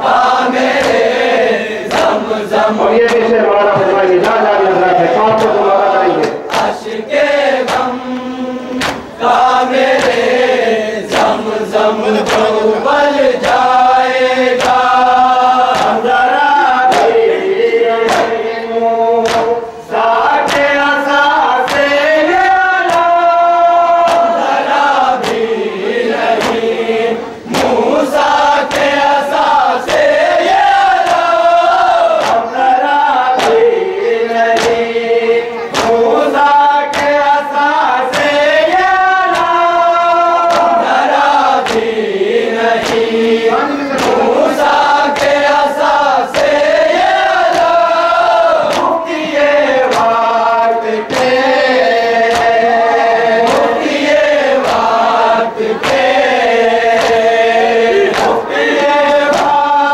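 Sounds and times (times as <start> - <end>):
chorus chanting in unison: 0.0 - 59.9
chest-beating slaps: 0.1 - 4.5, 5.1 - 7.0, 7.6 - 10.3, 11.1 - 11.4, 12.2 - 12.6, 14.5 - 15.0, 15.6 - 16.0, 16.8 - 17.3, 18.0 - 18.4, 19.2 - 19.7, 20.4 - 20.8, 21.6 - 22.0, 22.8 - 23.2, 24.0 - 24.5, 25.2 - 25.5, 26.2 - 26.7, 27.5 - 27.9, 28.7 - 29.1, 29.8 - 30.2, 32.1 - 32.5, 33.4 - 33.8, 34.5 - 35.0, 35.7 - 36.1, 36.9 - 37.3, 38.0 - 38.5, 39.3 - 39.7, 40.4 - 42.0, 42.8 - 47.9, 48.6 - 51.4, 52.2 - 52.6, 53.4 - 57.4, 58.0 - 59.6.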